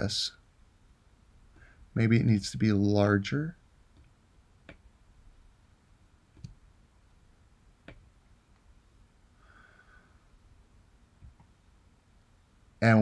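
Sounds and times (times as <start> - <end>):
faint computer mouse clicks: 6.4 - 6.6.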